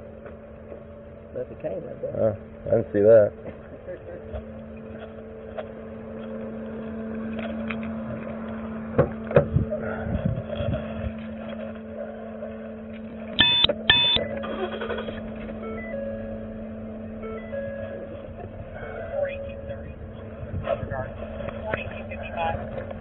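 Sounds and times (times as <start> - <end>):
steady hum: 0.0 - 23.0
short electronic beeps: 13.4 - 14.4.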